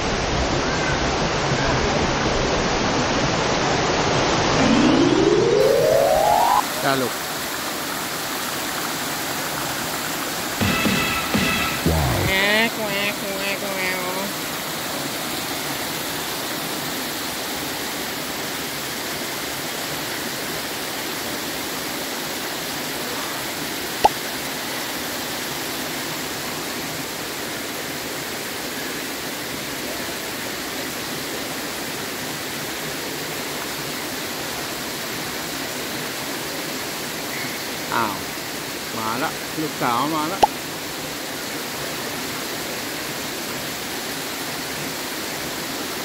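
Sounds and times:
waterfall rushing: 2.8s - 28.4s.

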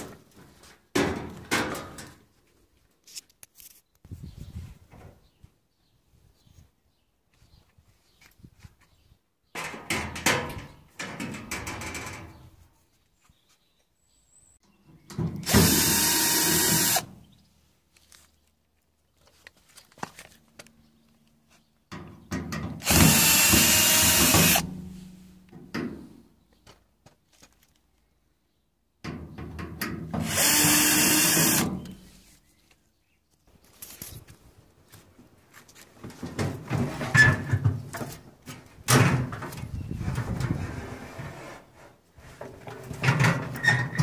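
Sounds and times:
cordless drill driving screws: 15.4s - 17.1s, 22.8s - 24.6s, 30.2s - 31.8s.

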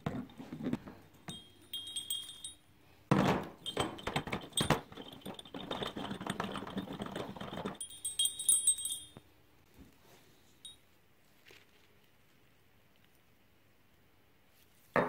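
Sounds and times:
metal bolts clinking: 1.3s - 2.6s, 3.6s - 9.2s.

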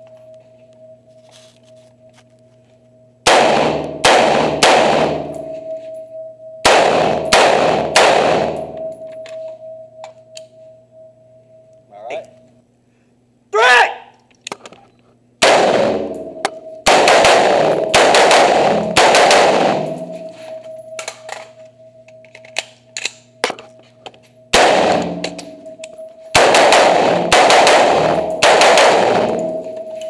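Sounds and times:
rifle shots echoing indoors: 3.2s - 5.8s, 6.6s - 9.8s, 15.4s - 21.5s, 24.5s - 30.0s.

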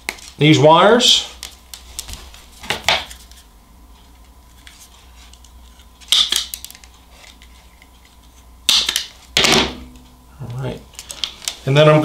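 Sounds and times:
wire stripper snap: 8.7s - 9.8s.

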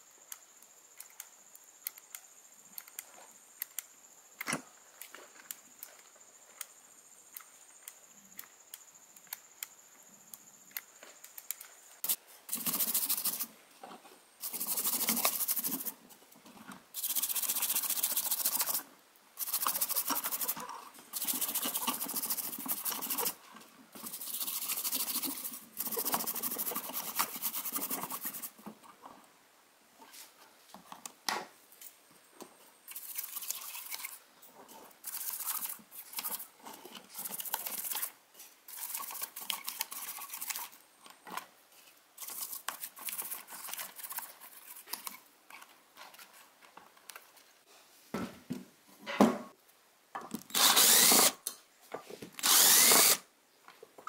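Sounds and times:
faint small ticks: 0.2s - 11.8s
brush scrubbing circuit board: 12.0s - 13.5s, 14.4s - 15.9s, 17.0s - 18.8s, 19.4s - 20.6s, 21.2s - 23.4s, 24.0s - 28.6s, 32.9s - 34.2s, 35.0s - 36.5s, 38.7s - 40.8s.

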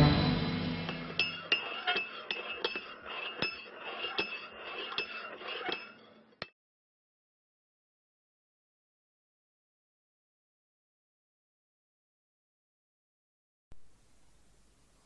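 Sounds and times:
music: 0.0s - 1.2s.

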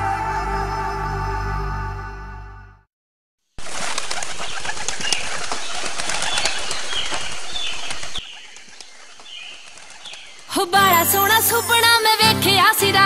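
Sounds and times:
birds chirping and twittering: 3.6s - 10.6s
crackly rush: 3.6s - 10.6s.

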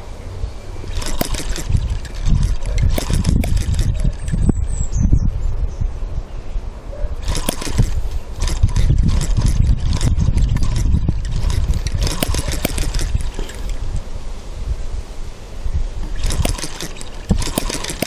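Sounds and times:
model engine popping: 0.9s - 4.6s, 7.2s - 13.9s, 16.0s - 18.0s.

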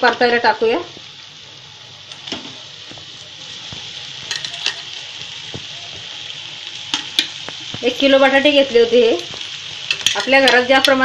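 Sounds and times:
hot oil sizzling: 0.0s - 11.0s
metal spoon scraping pan: 9.9s - 11.0s.

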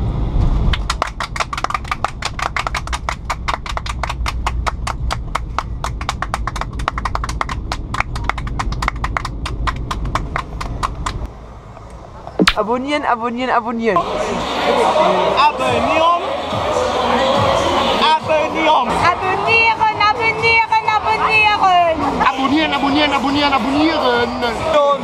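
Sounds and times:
aircraft cabin drone: 0.0s - 12.7s
passengers clapping: 0.7s - 11.3s.

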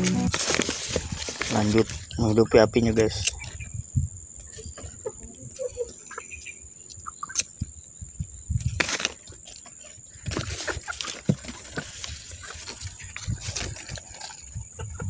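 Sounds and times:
paper rustling and crackling: 0.0s - 2.2s, 8.7s - 14.5s.

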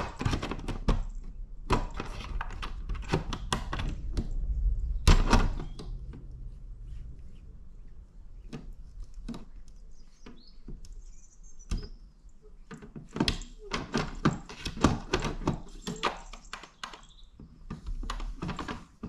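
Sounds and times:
cat flap rattling and clicking: 0.0s - 6.3s, 11.7s - 19.0s.

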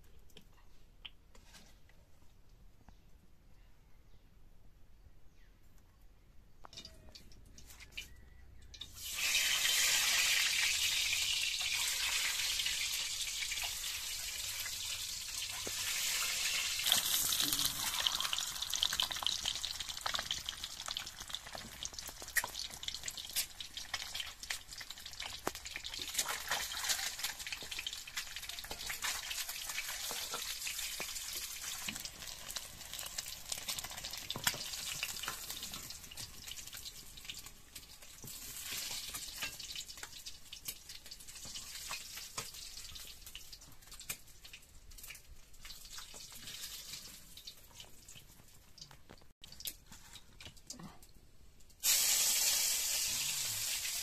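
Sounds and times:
oil popping and crackling: 6.6s - 54.0s
eggs sizzling in hot oil: 8.7s - 49.8s, 51.7s - 54.0s.

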